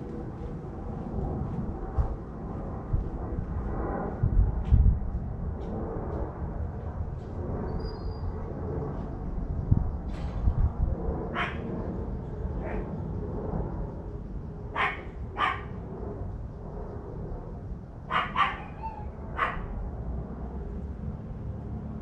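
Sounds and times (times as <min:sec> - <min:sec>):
dog barking: 0:11.4 - 0:11.7, 0:12.6 - 0:12.9, 0:14.7 - 0:15.8, 0:18.1 - 0:19.8.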